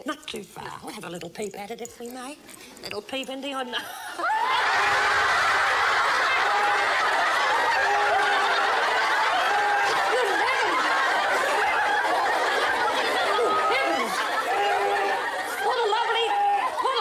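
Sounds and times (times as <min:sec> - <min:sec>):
audience of women laughing: 0:03.9 - 0:17.0.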